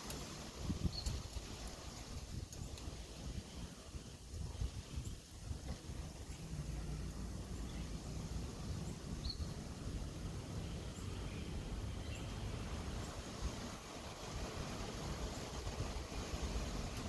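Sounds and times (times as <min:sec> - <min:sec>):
faint bird chirps: 0:00.8 - 0:01.4, 0:08.8 - 0:09.6.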